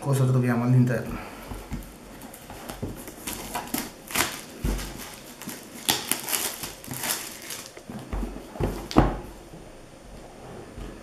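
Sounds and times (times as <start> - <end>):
plastic wrap tearing and crinkling: 1.8 - 9.0.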